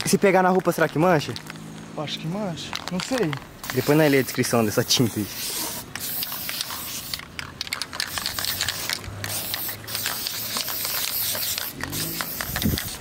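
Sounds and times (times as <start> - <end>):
spray paint can hissing: 3.0 - 13.0.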